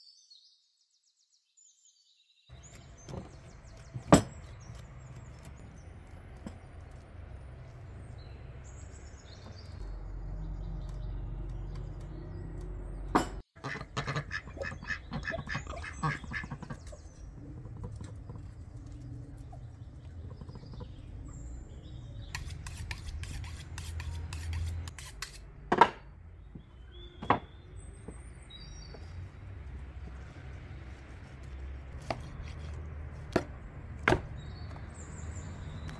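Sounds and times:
small birds chirping: 0:00.0 - 0:24.7, 0:26.4 - 0:35.9
duck quacking: 0:13.6 - 0:16.8.

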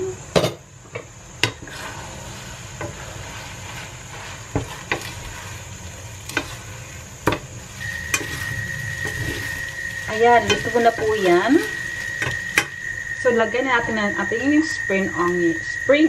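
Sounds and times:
food sizzling in a pan: 0:00.0 - 0:16.0
utensils knocking on pan: 0:07.2 - 0:07.5, 0:10.1 - 0:11.4, 0:12.2 - 0:12.8
thin high tone: 0:07.8 - 0:16.0.

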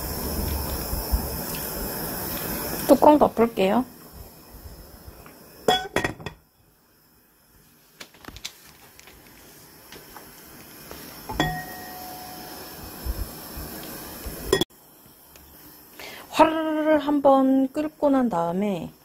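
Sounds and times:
glass lid clinking on pot: 0:05.7 - 0:06.4, 0:11.3 - 0:12.4
ringing lid strike: 0:11.3 - 0:12.6.

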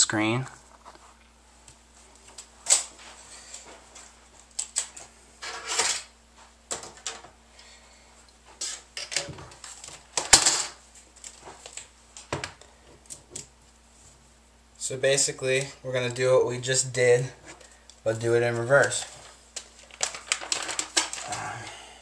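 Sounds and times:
laptop parts clicking and rustling: 0:02.2 - 0:06.1, 0:08.6 - 0:13.5, 0:17.5 - 0:21.4.

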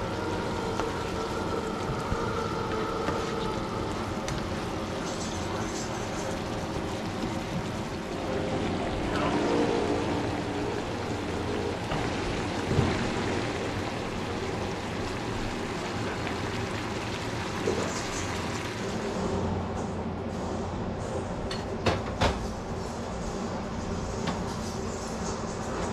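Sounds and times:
onions sizzling in a frying pan: 0:00.0 - 0:18.9.

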